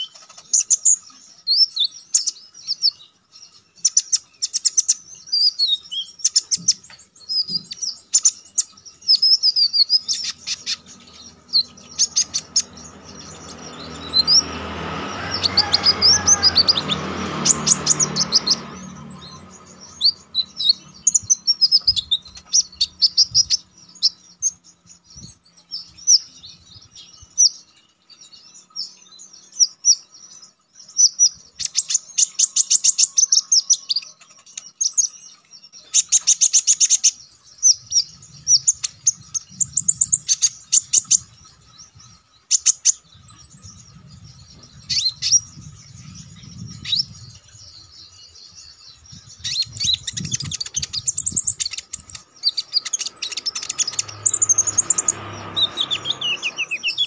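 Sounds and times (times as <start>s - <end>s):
bird singing high chirps and trills: 0.0s - 57.0s
low rumble: 43.0s - 48.0s.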